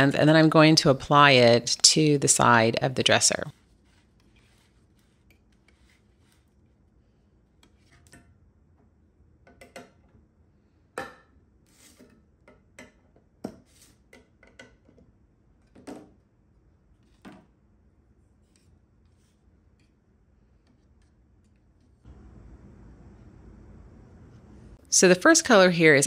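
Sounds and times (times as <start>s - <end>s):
stir stick scraping in metal can: 3.4s - 6.8s.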